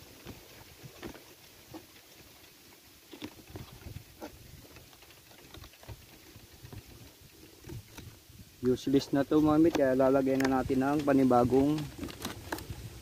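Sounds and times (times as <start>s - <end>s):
low wind rumble on microphone: 3.3s - 13.0s.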